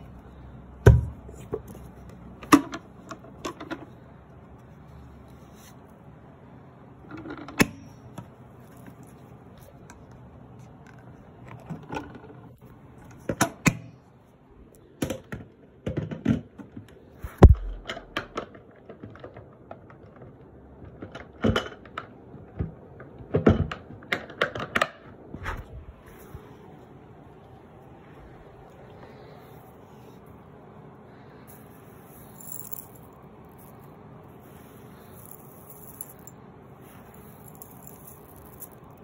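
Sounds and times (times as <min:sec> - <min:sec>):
thud: 0:17.3 - 0:18.1.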